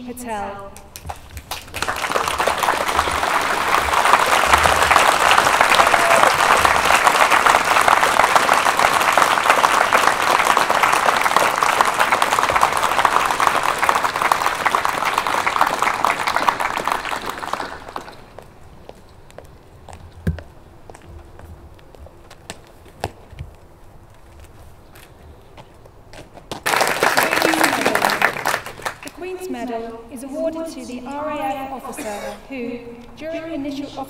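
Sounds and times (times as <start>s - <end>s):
audience applauding: 0.9s - 18.5s, 26.5s - 29.2s.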